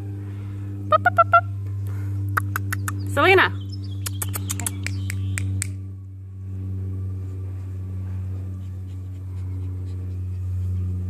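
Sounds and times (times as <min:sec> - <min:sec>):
low droning hum: 0:00.0 - 0:11.0
sharp clicks: 0:04.0 - 0:05.8.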